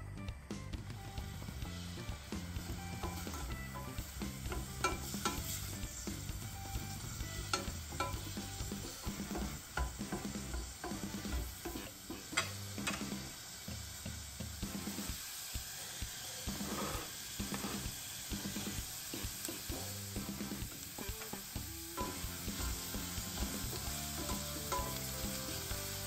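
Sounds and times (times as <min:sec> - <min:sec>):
food sizzling in oil: 0:01.0 - 0:26.0
utensil clinking against pan: 0:03.0 - 0:05.5, 0:07.4 - 0:08.4, 0:24.2 - 0:25.0.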